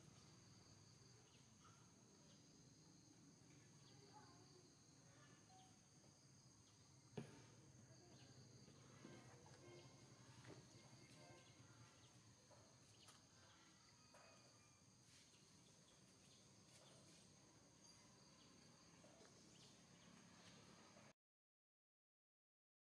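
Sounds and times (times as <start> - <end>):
insects chirring: 0.0 - 20.1.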